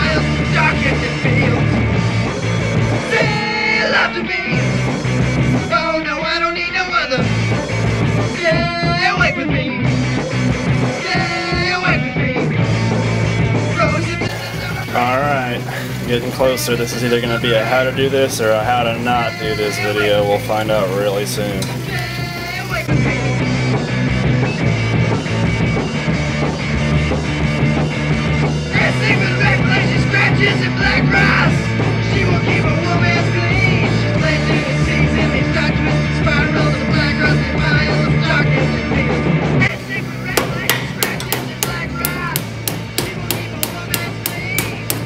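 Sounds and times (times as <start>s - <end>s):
punk rock music: 0.0s - 45.0s
rapid sharp knocks: 40.3s - 45.0s.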